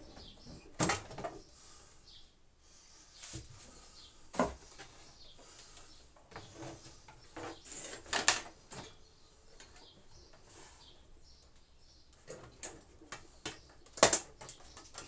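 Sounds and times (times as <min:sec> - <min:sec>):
wooden shelf scraping and knocking: 0:06.3 - 0:08.9.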